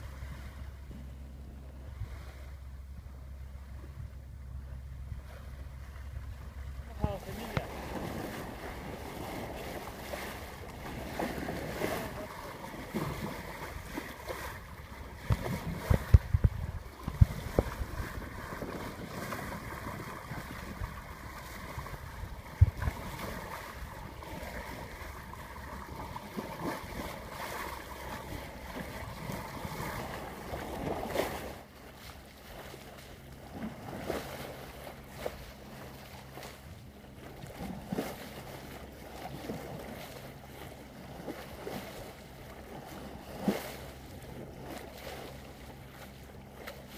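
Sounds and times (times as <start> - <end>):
wind on microphone: 0.0 - 32.8
boat engine hum: 0.0 - 46.9
water rushing at boat bow: 0.0 - 46.9.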